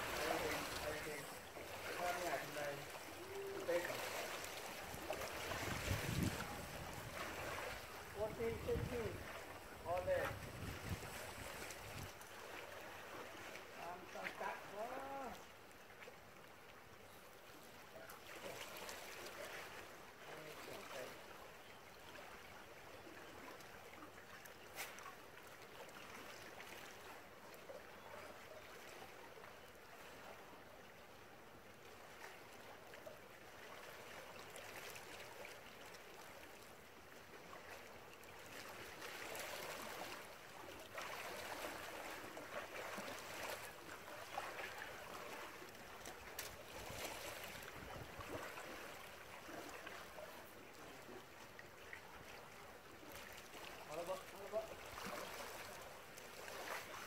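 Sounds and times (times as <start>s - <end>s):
waves lapping against rocks: 0.0s - 15.6s, 33.6s - 57.0s.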